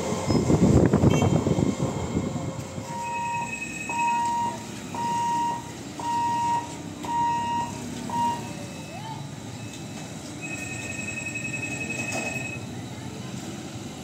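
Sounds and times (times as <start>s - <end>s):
passing electric train rumble: 0.0s - 14.0s
electronic warning beeps: 2.9s - 12.7s.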